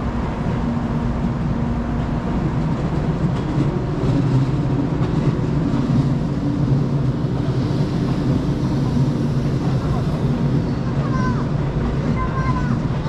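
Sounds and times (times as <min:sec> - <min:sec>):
train equipment low hum: 0:00.0 - 0:13.0.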